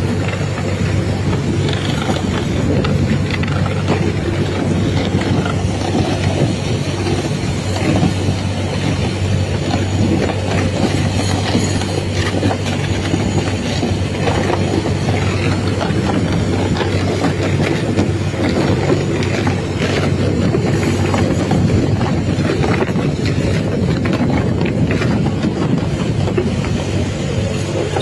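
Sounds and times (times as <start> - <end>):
boat engine droning: 0.0 - 28.0
rattling and clatter: 0.0 - 28.0
water rushing along hull: 0.0 - 28.0.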